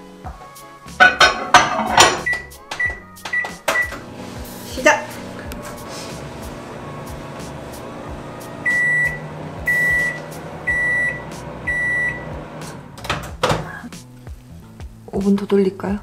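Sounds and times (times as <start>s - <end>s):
microwave oven humming: 3.8s - 4.6s, 5.2s - 13.4s.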